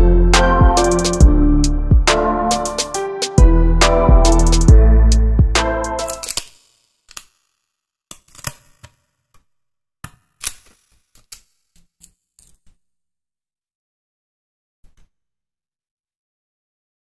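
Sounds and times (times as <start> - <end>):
puzzle piece clicks and crackles: 6.0 - 7.4.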